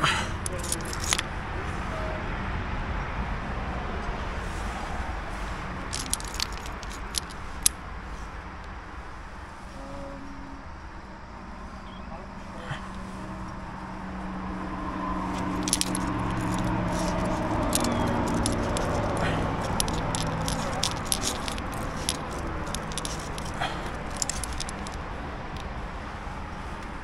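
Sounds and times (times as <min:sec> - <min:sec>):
metal climbing gear clinking: 0:00.0 - 0:01.3, 0:05.8 - 0:07.8, 0:12.6 - 0:13.7, 0:14.8 - 0:25.7
low steady drone: 0:07.8 - 0:22.6.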